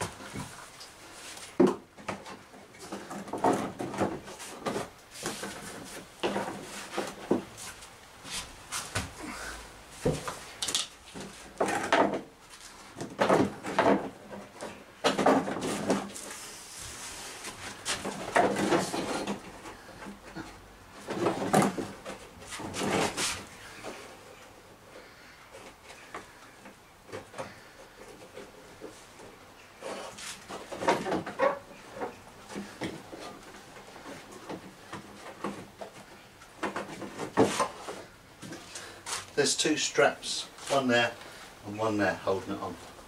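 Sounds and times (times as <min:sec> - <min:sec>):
plastic bumper knocking and creaking: 0:01.6 - 0:07.5, 0:11.1 - 0:12.3, 0:12.9 - 0:16.2, 0:17.8 - 0:23.2, 0:29.8 - 0:38.6.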